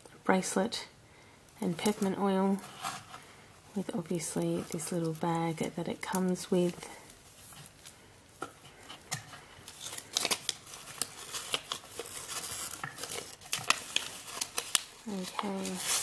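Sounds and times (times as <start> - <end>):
paper wrapping crinkling: 9.0 - 16.0.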